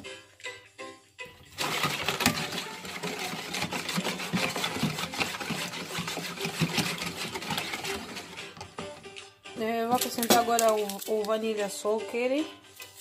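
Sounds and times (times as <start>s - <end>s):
whisk beating batter in bowl: 1.5s - 8.9s.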